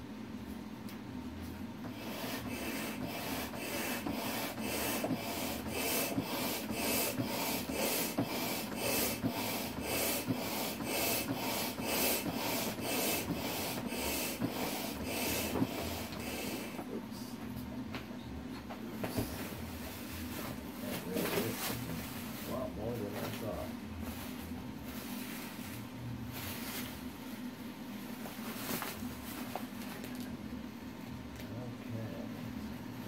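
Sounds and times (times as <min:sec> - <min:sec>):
hand air pump strokes: 0:01.9 - 0:16.8.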